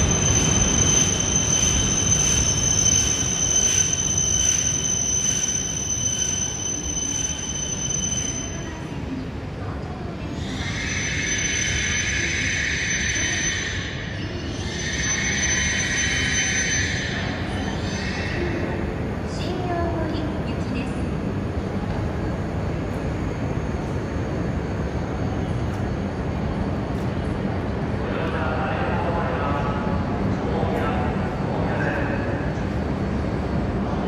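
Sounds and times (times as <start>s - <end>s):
train high whine: 0.0s - 34.0s
hissing squeal: 10.4s - 18.8s.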